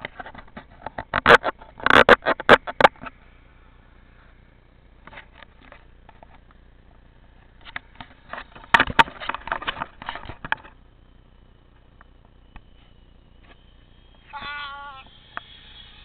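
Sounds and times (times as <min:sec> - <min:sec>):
faint steady background noise: 0:00.0 - 0:16.0.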